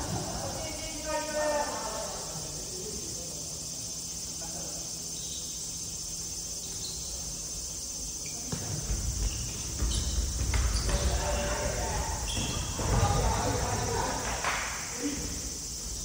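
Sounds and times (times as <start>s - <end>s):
high-pitched insect drone: 0.0s - 16.0s
thuds of play on wooden court: 8.2s - 14.8s.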